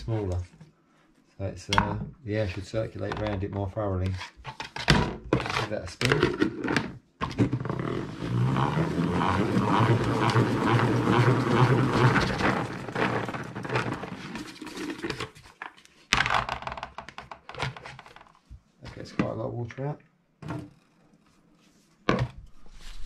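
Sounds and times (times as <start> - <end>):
salad spinner whirring: 7.8 - 14.9.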